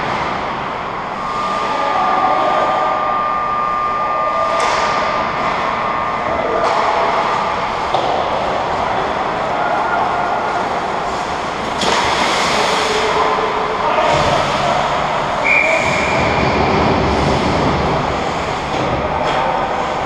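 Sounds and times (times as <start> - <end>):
referee's whistle: 15.4 - 16.6.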